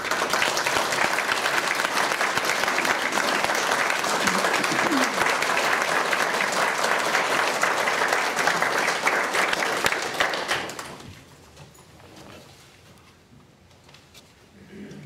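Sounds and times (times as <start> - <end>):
crowd applause: 0.0 - 11.1.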